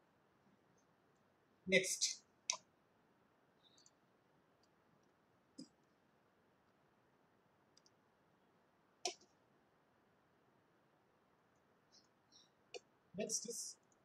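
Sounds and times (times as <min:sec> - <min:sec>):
computer mouse clicks: 0:03.6 - 0:04.0, 0:07.7 - 0:08.0.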